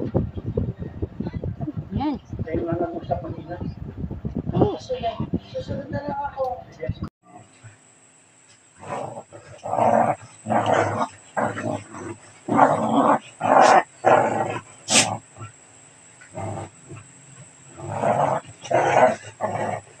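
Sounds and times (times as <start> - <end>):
small dogs growling and snarling: 8.8 - 15.6, 16.2 - 20.0.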